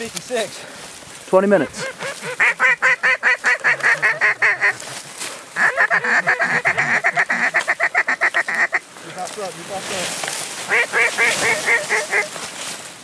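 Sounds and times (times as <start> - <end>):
duck call quacks: 1.6 - 5.0, 5.6 - 8.9, 10.7 - 12.4.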